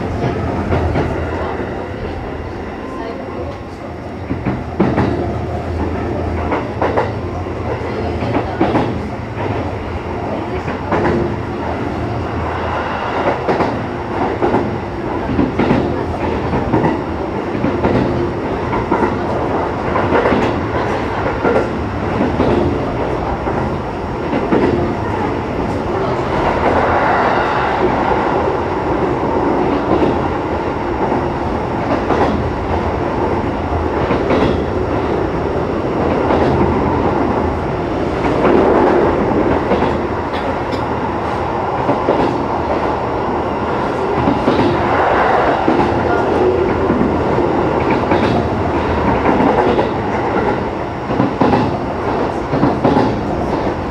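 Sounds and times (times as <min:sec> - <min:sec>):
train running rumble: 0:00.0 - 0:53.9
wheels clacking over rail joints: 0:45.6 - 0:53.8.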